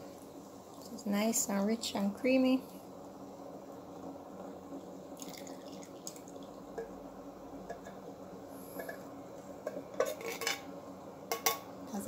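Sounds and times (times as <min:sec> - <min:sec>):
liquid dribbling into a pot: 0:05.1 - 0:07.0.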